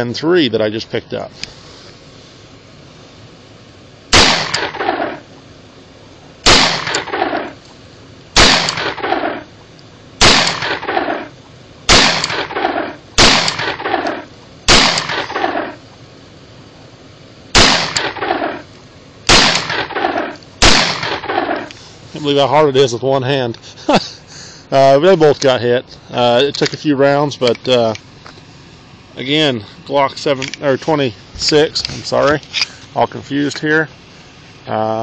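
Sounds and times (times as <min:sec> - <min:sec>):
pistol shots with echo: 0:04.1 - 0:05.2, 0:06.4 - 0:07.6, 0:08.4 - 0:09.4, 0:10.2 - 0:11.3, 0:11.9 - 0:15.8, 0:17.6 - 0:18.6, 0:19.3 - 0:21.7.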